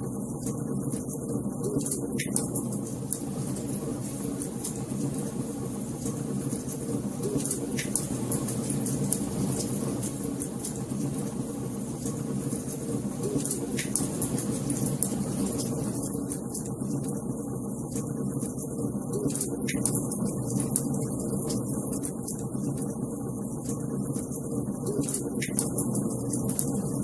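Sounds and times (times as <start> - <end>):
steady low hum: 0.0 - 27.0
fire crackling: 2.6 - 17.2.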